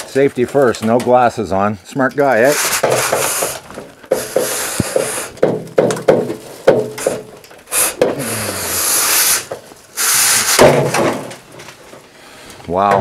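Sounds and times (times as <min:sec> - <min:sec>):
wire brush scraping in metal pipe: 0:02.3 - 0:05.4
brush knocking against pipe: 0:02.7 - 0:08.2.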